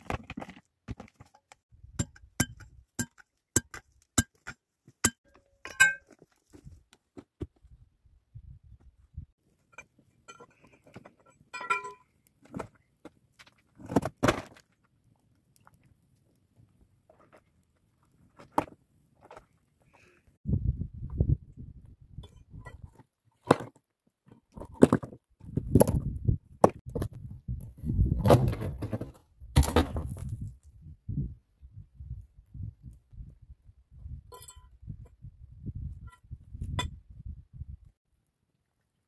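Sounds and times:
metal pick clinking on rock: 2.0s - 6.2s, 9.7s - 12.1s, 34.3s - 34.7s
scraping thud of rock: 28.0s - 30.5s.

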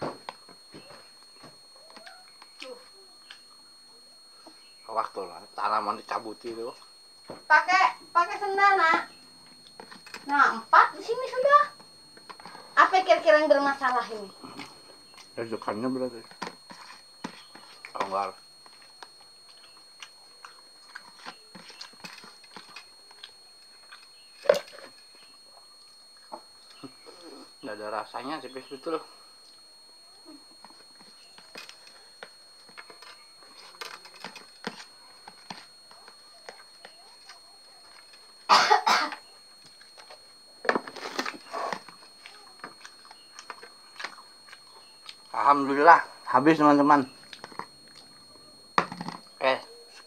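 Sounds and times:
close-up chewing: 16.2s - 27.6s, 39.1s - 45.4s.

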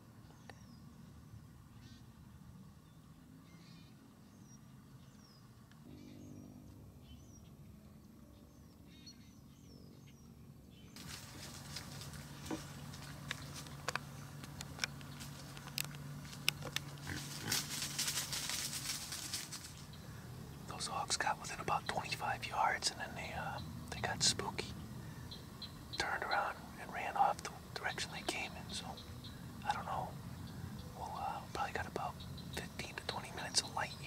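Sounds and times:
faint bird chirps: 0.2s - 11.6s, 19.6s - 34.0s
brush snapping and crackling: 11.0s - 19.9s
hogs grunting: 16.8s - 18.1s.

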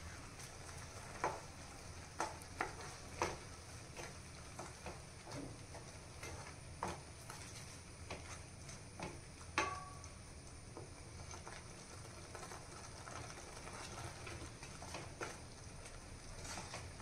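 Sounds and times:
wooden spatula scraping steel pan: 0.0s - 9.2s, 16.3s - 17.0s.

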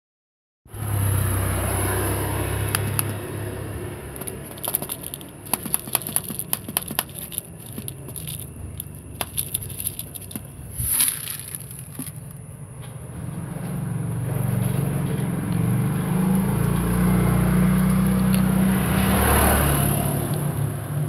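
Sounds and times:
cat food pellets clicking on concrete: 2.5s - 3.4s, 4.0s - 12.4s, 17.6s - 21.0s.

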